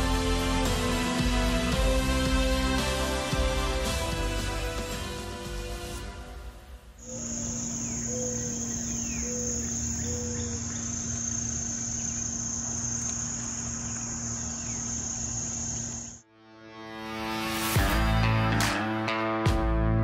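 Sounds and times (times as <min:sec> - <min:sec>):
crickets and insects droning: 0:05.8 - 0:16.2.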